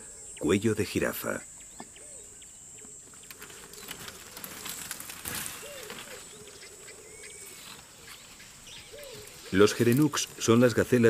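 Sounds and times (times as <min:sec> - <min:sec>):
birds calling: 0:00.0 - 0:11.0
high insect hum: 0:00.0 - 0:11.0
rustle: 0:01.0 - 0:11.0.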